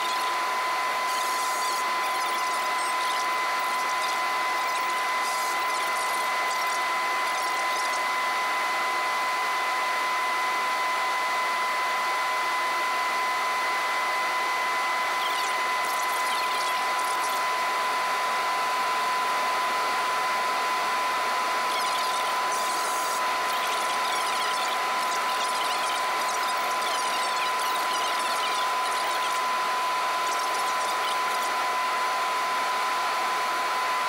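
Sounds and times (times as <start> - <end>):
high engine whine: 19.9 - 33.9.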